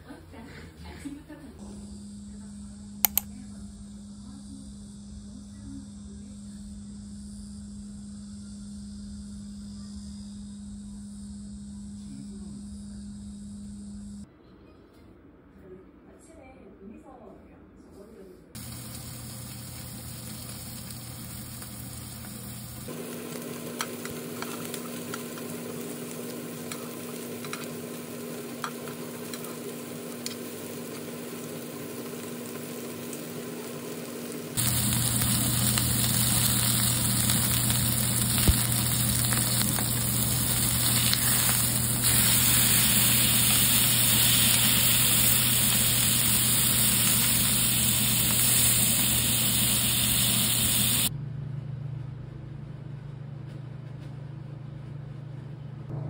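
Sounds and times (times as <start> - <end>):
steady hum: 1.6 - 14.3, 18.6 - 53.1
food sizzling in a pan: 18.6 - 51.1.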